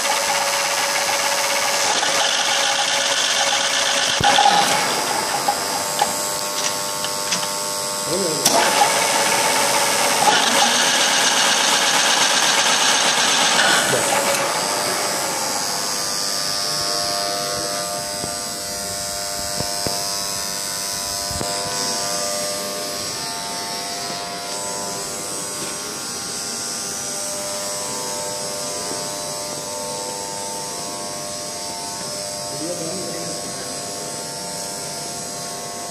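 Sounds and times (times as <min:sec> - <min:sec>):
milling machine rushing noise: 0:00.0 - 0:26.4
motor and gearbox humming: 0:00.0 - 0:35.9
steady whining tones: 0:00.0 - 0:35.9.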